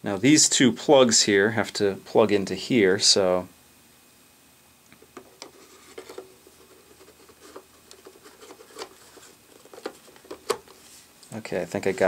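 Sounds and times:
plastic housing clicking and rubbing: 5.0s - 10.8s.

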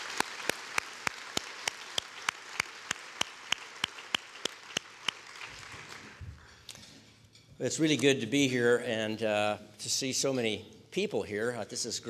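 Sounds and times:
audience applause: 0.0s - 6.4s
close hand claps: 0.0s - 6.7s.

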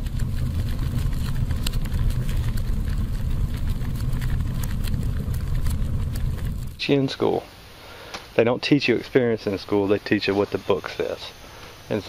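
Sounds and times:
flames rumbling: 0.0s - 8.1s
fire crackles: 0.0s - 8.4s.

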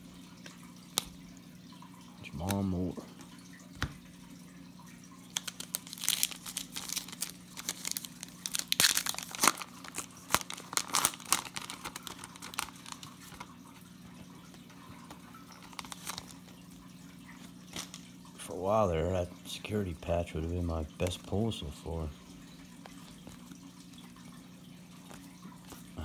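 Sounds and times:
foil wrapper crinkling: 5.3s - 13.8s, 14.4s - 18.2s.

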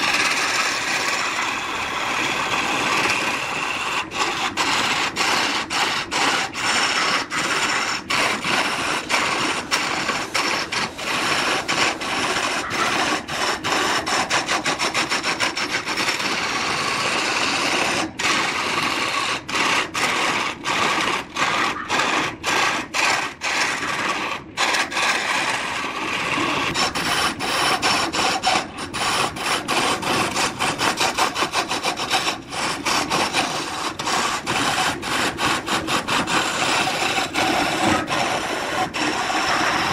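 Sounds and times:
lathe tool scraping wood: 0.0s - 39.9s.

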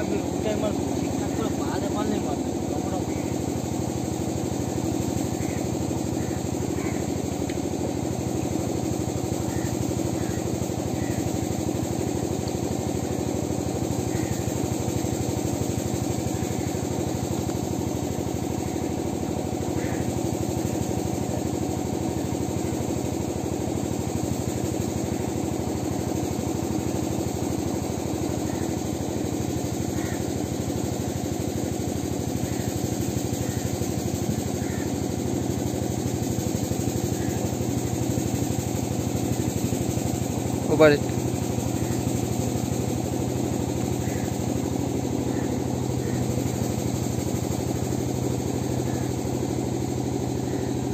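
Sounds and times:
engine running steadily: 0.0s - 50.9s.

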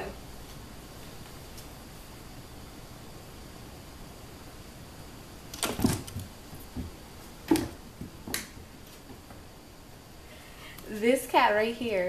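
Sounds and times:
taps on hardwood floor: 5.6s - 8.6s.

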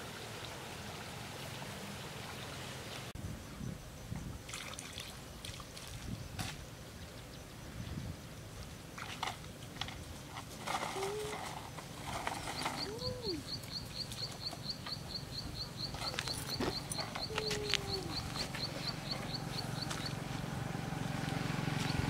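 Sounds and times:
low animal calls: 12.3s - 20.2s.

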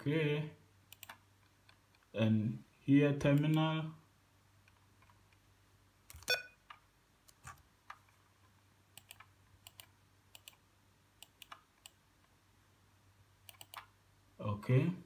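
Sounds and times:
faint computer mouse clicks: 0.9s - 1.8s, 8.9s - 10.6s, 11.2s - 12.0s, 13.5s - 13.9s.

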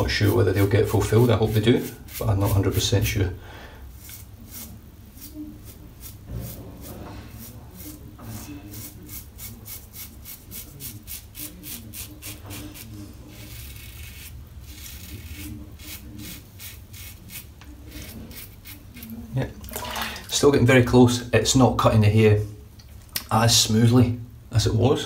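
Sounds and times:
razor scraping stubble: 0.1s - 3.1s, 4.0s - 19.2s.

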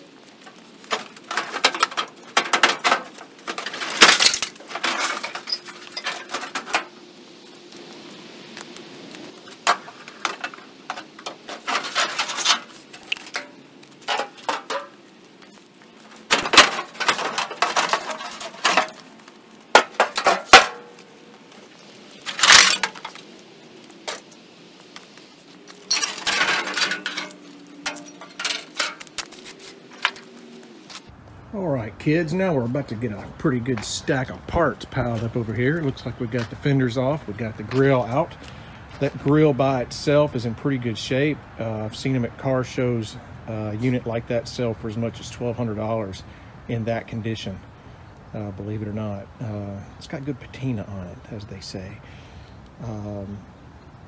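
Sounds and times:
metallic clanks and rattles: 0.4s - 6.9s, 9.5s - 15.0s, 16.1s - 21.1s, 22.2s - 23.2s, 25.8s - 29.3s.

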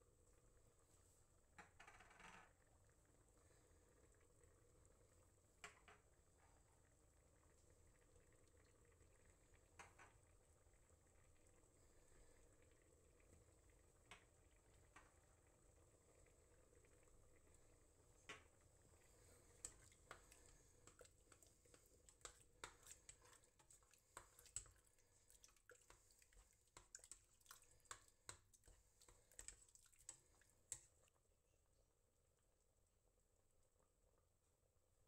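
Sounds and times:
spoon stirring sauce in metal pot: 18.3s - 31.1s.

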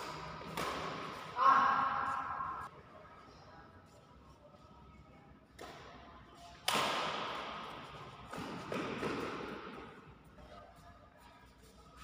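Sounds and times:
racket hitting shuttlecock: 0.0s - 2.6s, 6.6s - 10.0s.

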